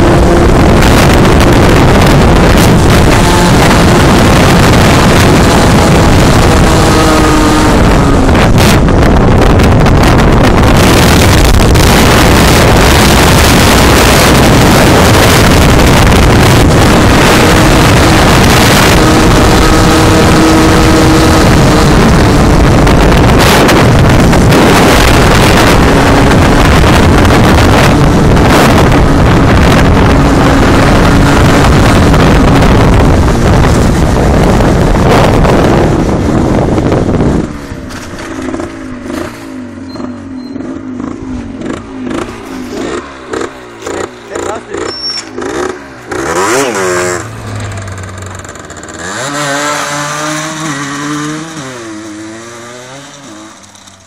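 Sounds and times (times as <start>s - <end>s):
wind buffeting microphone: 0.0s - 39.3s
engine hum: 0.0s - 54.0s.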